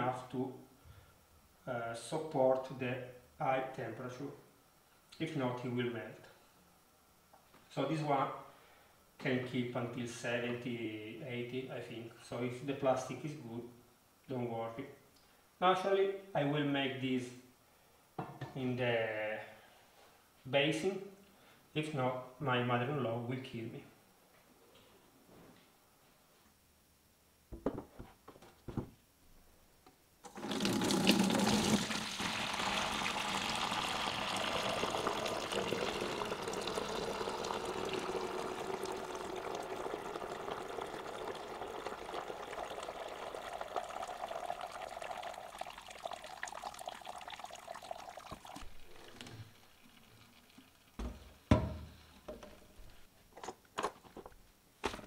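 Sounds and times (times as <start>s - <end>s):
liquid splashing into bucket: 30.3s - 52.3s.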